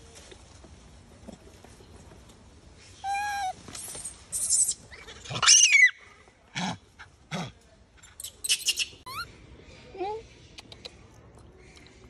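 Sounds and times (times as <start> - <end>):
monkey calls and screeches: 3.0 - 6.0, 8.2 - 9.3.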